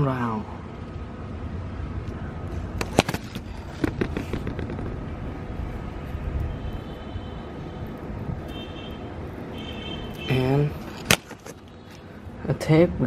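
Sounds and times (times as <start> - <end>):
low steady rumble: 0.1 - 11.0
wires twisting sharp clicks: 2.7 - 12.0.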